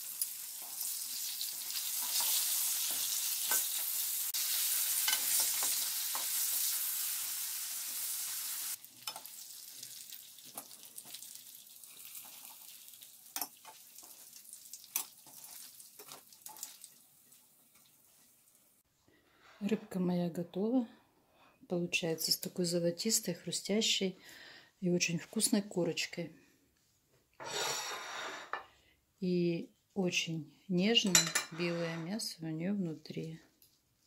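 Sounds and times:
fish sizzling in hot oil: 0.0 - 18.8.

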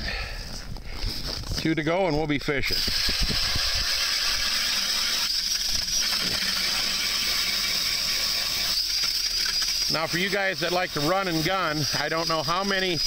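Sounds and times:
drill motor whining: 2.6 - 13.0.

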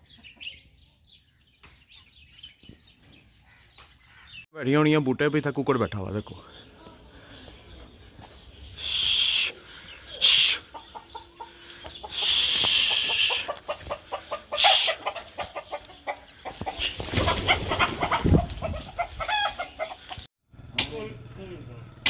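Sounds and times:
rooster clucking: 10.2 - 20.3.

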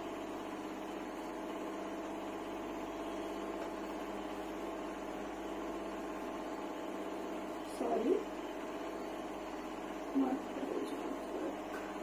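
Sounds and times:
pitched background hum: 0.0 - 12.0.

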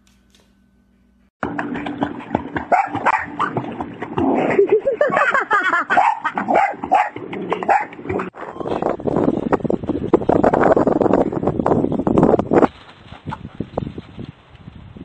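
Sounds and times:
water splashing: 1.4 - 8.4
dog barking: 2.7 - 3.6, 5.9 - 8.0.

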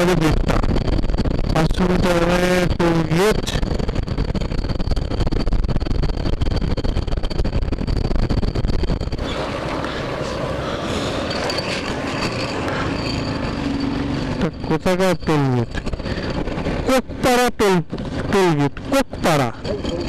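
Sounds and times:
motorcycle engine: 0.0 - 20.0
wind and road noise: 0.0 - 20.0.

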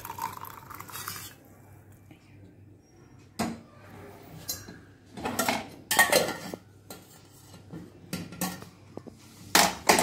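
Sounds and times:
kitchenware clinking against a mug: 4.4 - 8.8.

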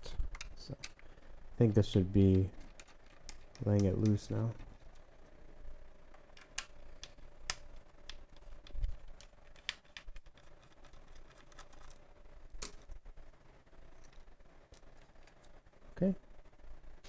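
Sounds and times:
faint steady hum: 0.0 - 17.0
hands clicking laptop chassis: 2.3 - 4.7, 6.3 - 12.0.

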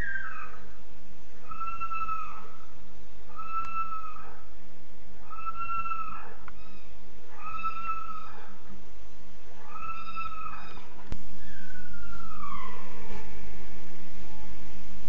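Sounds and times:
animal calling: 0.0 - 0.7, 1.4 - 4.5, 5.2 - 8.7, 9.5 - 13.4.

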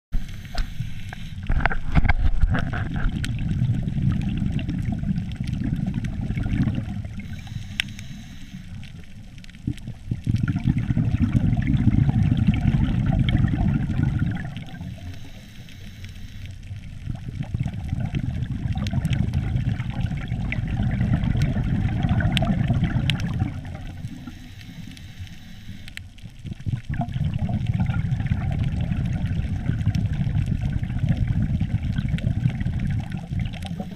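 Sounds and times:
exhaled bubbles underwater: 0.2 - 33.9
faint clicks: 7.1 - 10.4, 14.6 - 17.5, 22.3 - 27.2.

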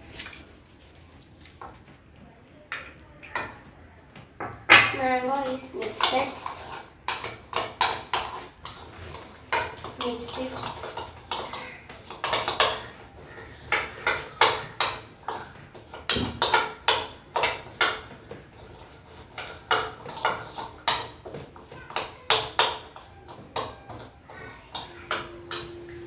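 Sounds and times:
spoon clinking on ceramic bowl: 24.7 - 26.0.

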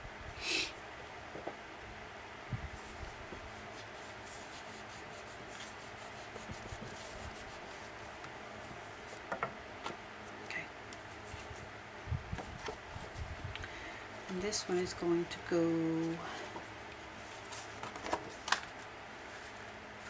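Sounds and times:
bone folder rubbing over paper: 2.8 - 9.2, 11.0 - 11.7.

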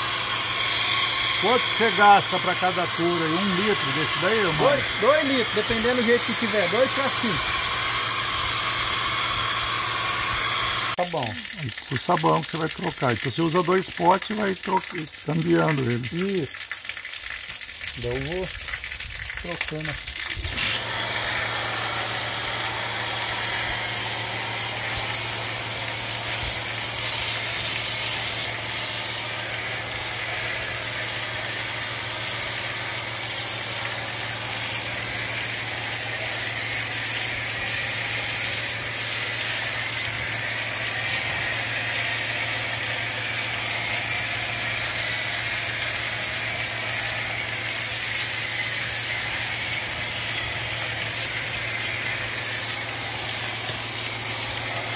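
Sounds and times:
motor hum: 0.0 - 11.9, 19.9 - 47.5
pressure washer spray hissing: 0.0 - 16.5, 19.7 - 54.9.

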